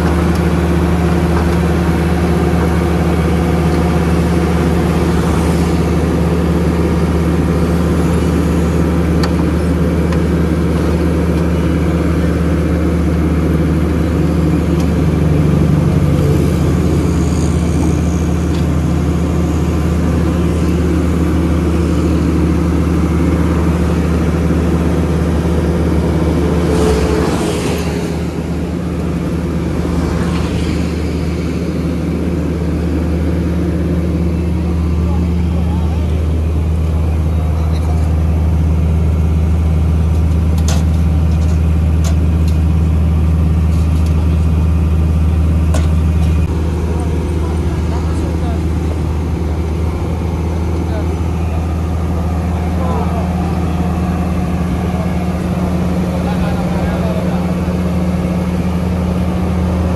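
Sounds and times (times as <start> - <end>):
paver diesel engine humming: 0.0 - 59.9.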